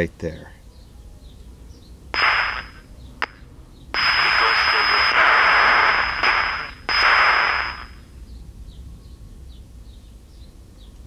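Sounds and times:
radio speaker static hiss: 2.2s - 3.4s, 4.0s - 8.1s.

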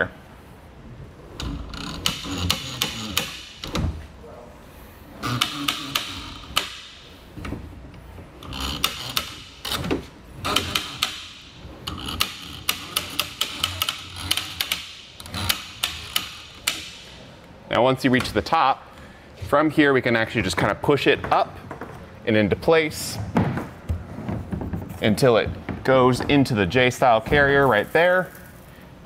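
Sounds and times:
sharp latch clicks: 5.3s - 6.9s.

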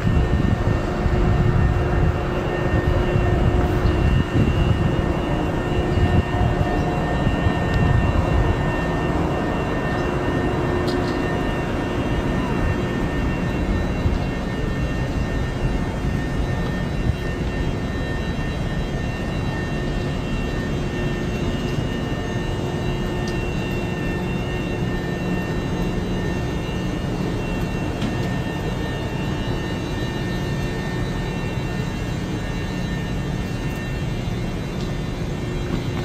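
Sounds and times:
electric train rumble: 0.0s - 36.0s
faint whining tones: 0.0s - 36.0s.

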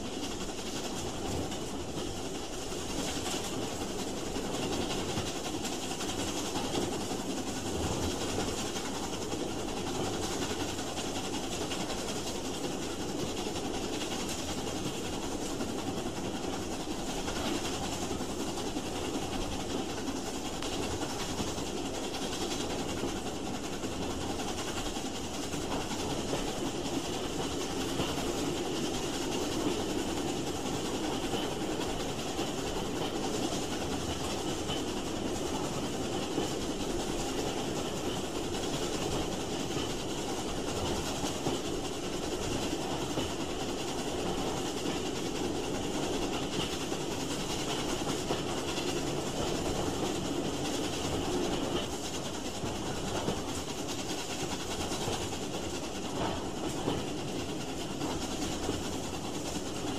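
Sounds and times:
train wheels rumbling: 0.0s - 59.9s.

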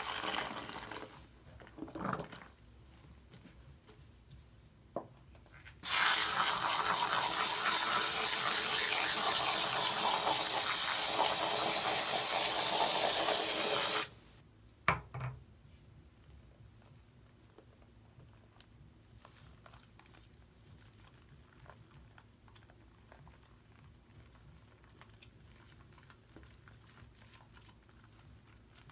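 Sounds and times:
aerosol can spraying hiss: 5.8s - 14.2s.

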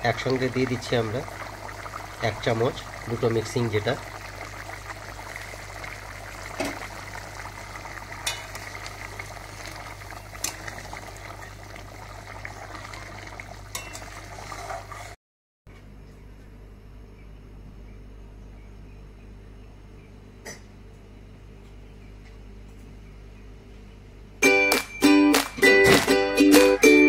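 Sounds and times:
curry bubbling in a pan: 0.0s - 15.2s.

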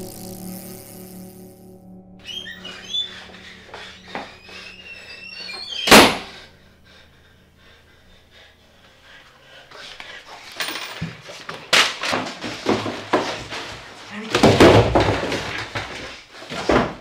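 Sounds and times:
door slamming: 5.4s - 6.4s.

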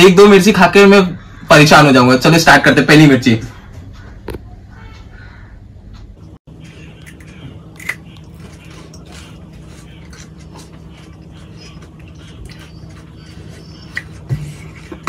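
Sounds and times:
low steady hum: 3.5s - 15.0s
person biting and chewing chilli: 6.5s - 15.0s.

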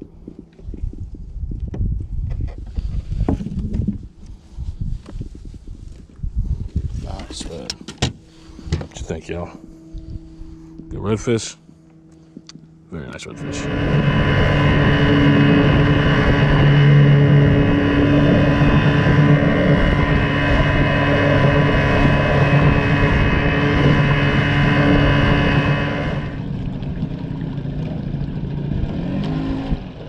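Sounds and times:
outboard motor running: 7.2s - 30.0s
wind and water rushing: 13.2s - 30.0s.

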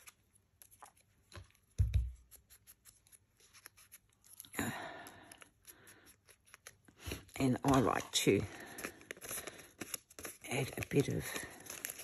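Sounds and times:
paper rustling: 0.0s - 4.5s, 5.1s - 12.0s.

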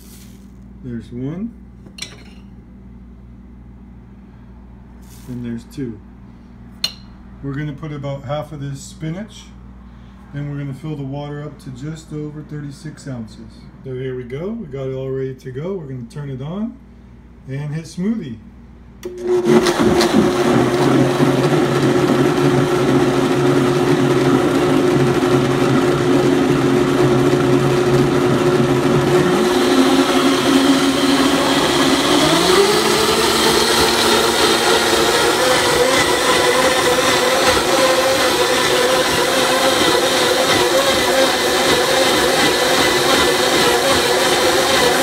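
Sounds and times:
blender motor running: 19.0s - 45.0s.

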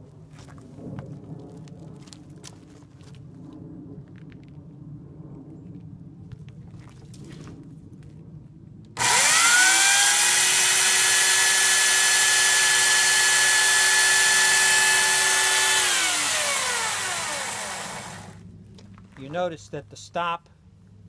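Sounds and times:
electric chainsaw cutting wood: 9.0s - 18.4s.

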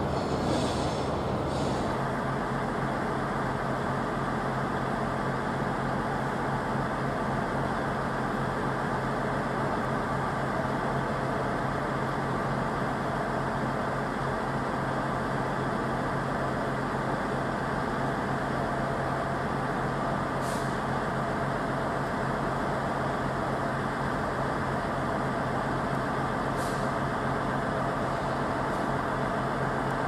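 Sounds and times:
brief high hisses: 0.0s - 2.0s
diesel locomotive engine humming: 0.0s - 30.0s.

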